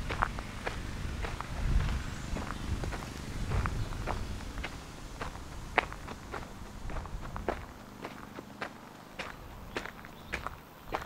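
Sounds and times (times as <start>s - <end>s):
low rumble: 0.0s - 7.7s
footsteps walking: 0.0s - 11.0s.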